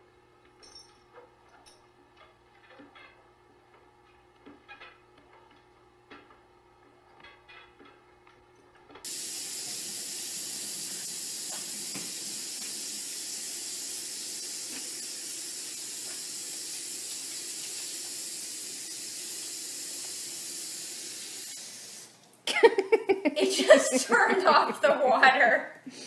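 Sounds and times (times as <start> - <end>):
faucet water splashing: 9.0 - 22.3.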